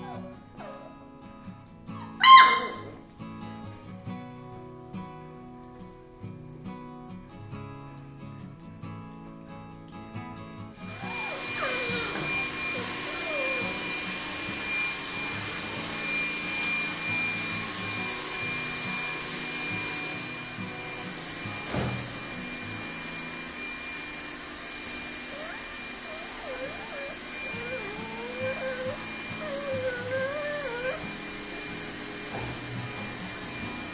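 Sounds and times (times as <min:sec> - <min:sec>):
vacuum cleaner running: 0:01.9 - 0:03.9, 0:10.7 - 0:33.9
thump: 0:21.7 - 0:22.1.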